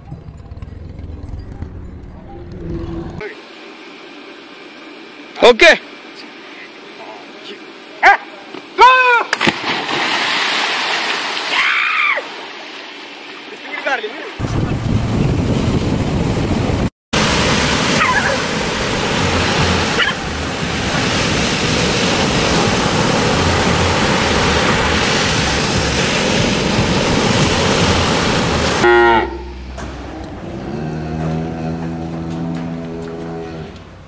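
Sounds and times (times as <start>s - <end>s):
ocean surf breaking: 9.7s - 30.2s.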